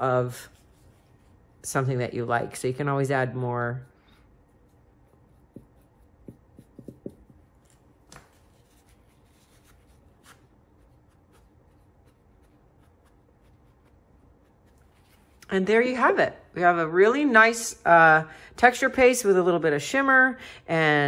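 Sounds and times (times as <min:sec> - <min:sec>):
paper towel dabbing: 0:00.0 - 0:02.8, 0:03.7 - 0:15.5
paintbrush tapping and scratching: 0:03.7 - 0:15.5.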